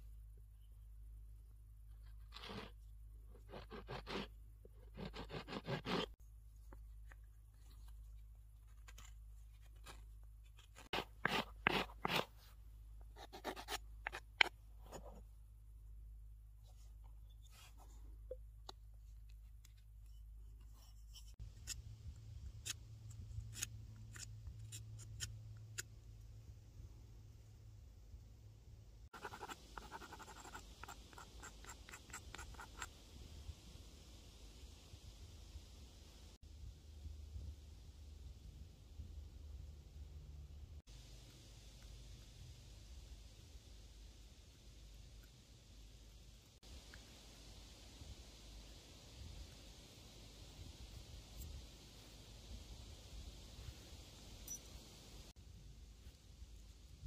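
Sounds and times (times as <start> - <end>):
stone flake scraping stopper: 8.6 - 12.4, 13.3 - 15.2, 22.6 - 25.9.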